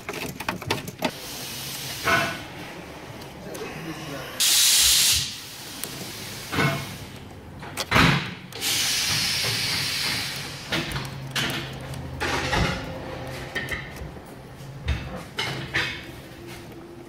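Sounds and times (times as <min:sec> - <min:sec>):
hissing rush: 0:03.8 - 0:07.2, 0:08.5 - 0:11.2.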